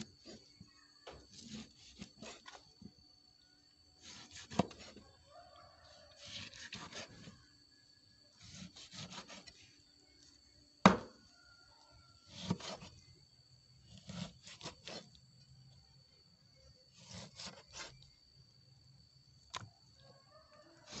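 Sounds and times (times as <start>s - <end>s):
cleaver sawing through meat: 1.3s - 2.6s, 6.1s - 7.3s, 8.4s - 9.6s, 12.3s - 12.9s, 13.9s - 15.1s, 16.9s - 18.0s
cleaver knocking on wooden board: 10.8s - 11.1s.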